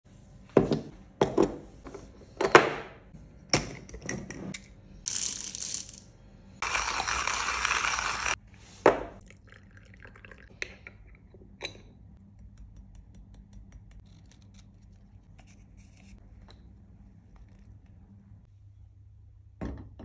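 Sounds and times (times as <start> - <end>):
coffee beans rattling into grinder: 5.1 - 6.0, 6.6 - 8.4.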